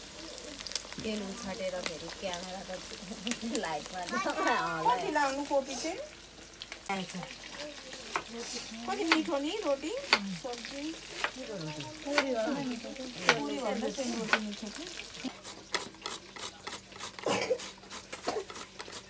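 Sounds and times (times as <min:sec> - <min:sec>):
grating on hand grater: 0:15.3 - 0:19.0.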